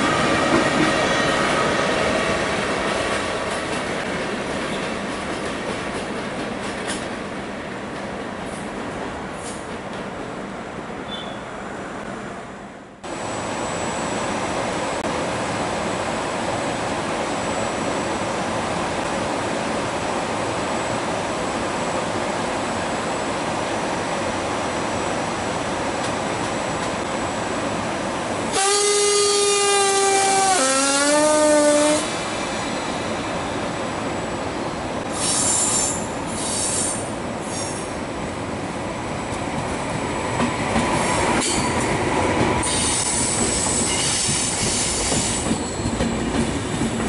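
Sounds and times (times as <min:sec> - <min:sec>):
two-tone train horn: 0:28.5 - 0:32.2.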